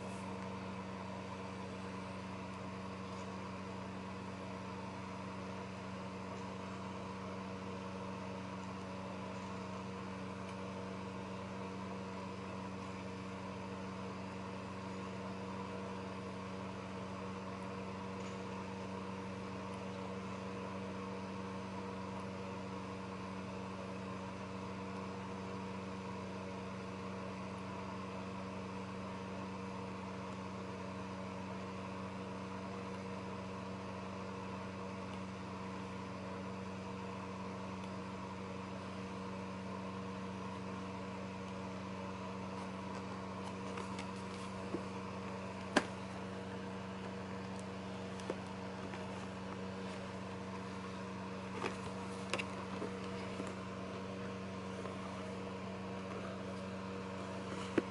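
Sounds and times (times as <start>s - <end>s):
electrical hum with hiss: 0.0s - 57.9s.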